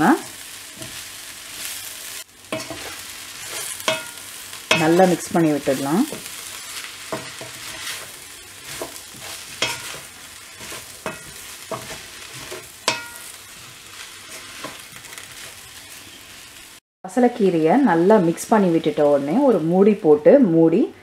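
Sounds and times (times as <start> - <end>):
frying sizzle: 0.0 - 20.3
wooden spatula scraping wok: 0.2 - 16.7.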